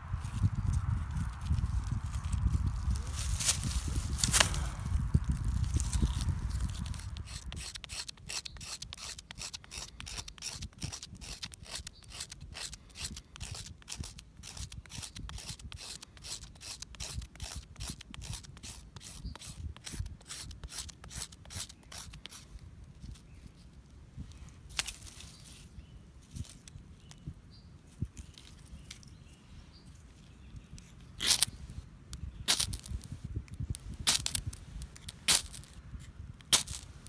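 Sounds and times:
knife scraping birch bark: 5.4s - 23.7s, 29.9s - 37.0s.

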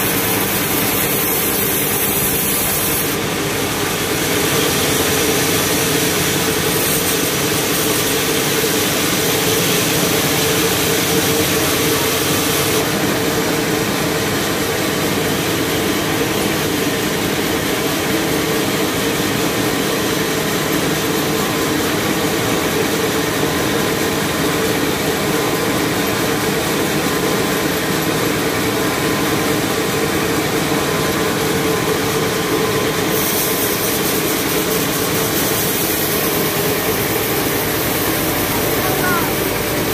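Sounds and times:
saw blade hiss: 0.0s - 13.0s, 30.7s - 39.9s
band sawmill drone: 0.0s - 39.9s.

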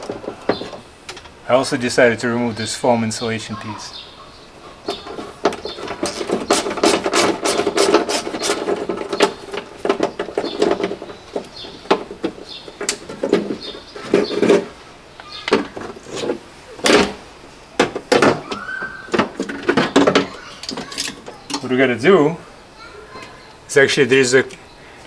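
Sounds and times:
foam scraping and squeaking: 0.0s - 2.0s, 4.8s - 17.2s, 18.2s - 21.9s.

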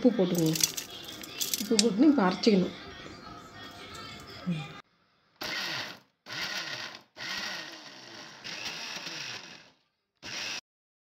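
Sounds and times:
mixer grinder running: 5.4s - 10.6s.

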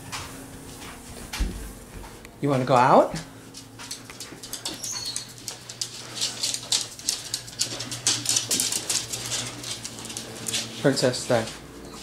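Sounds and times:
dog claws clicking on wooden floor: 3.6s - 11.6s.

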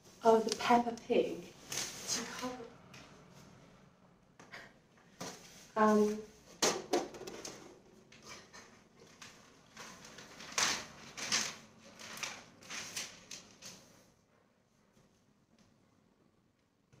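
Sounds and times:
wrapping paper rustling: 1.6s - 2.5s, 8.2s - 14.1s.

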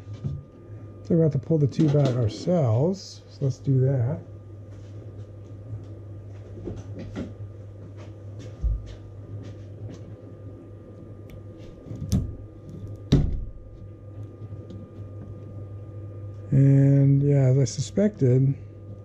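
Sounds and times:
steady low hum: 0.0s - 19.0s
dull thump: 13.1s - 13.7s.

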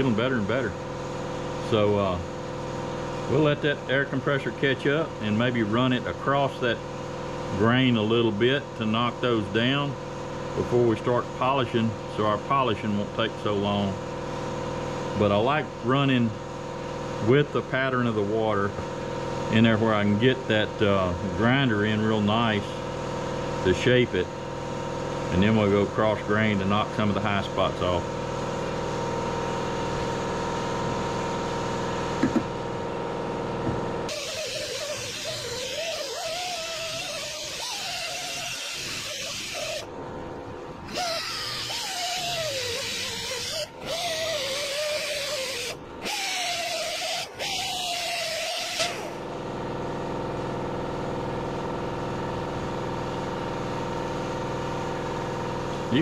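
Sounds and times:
air compressor running: 0.0s - 56.0s
air grinder whining on metal: 33.4s - 49.7s.

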